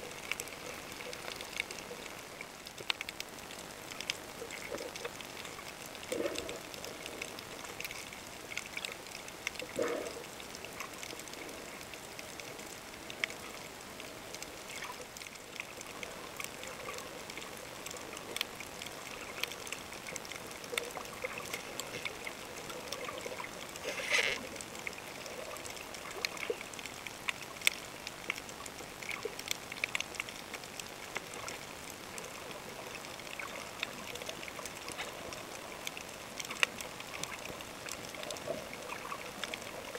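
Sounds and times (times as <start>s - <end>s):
underwater crackles and clicks: 0.0s - 39.9s
underwater hiss: 21.0s - 24.6s.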